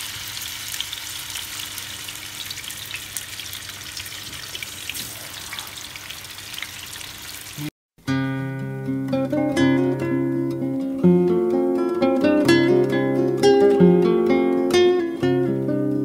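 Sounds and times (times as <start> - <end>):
fish sizzling in oil: 0.0 - 7.7.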